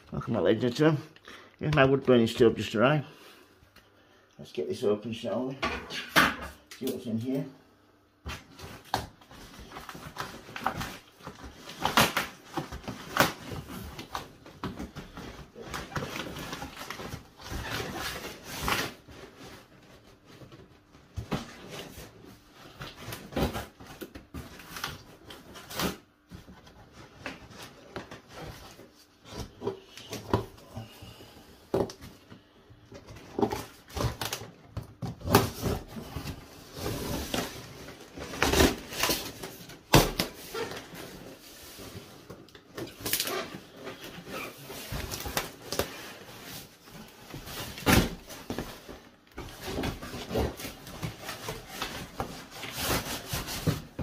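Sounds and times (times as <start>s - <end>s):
cardboard tearing and scraping: 33.3s - 54.0s.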